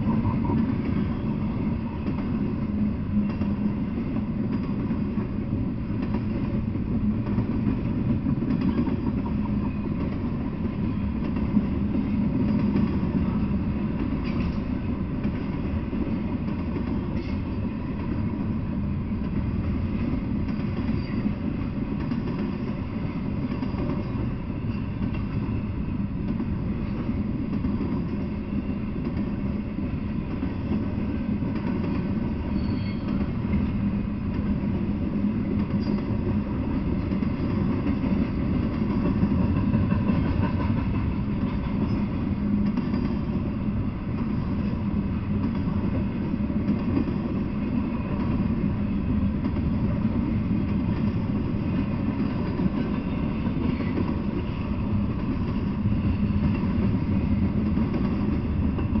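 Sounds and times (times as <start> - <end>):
freight train wheels on rails: 0.0 - 59.0.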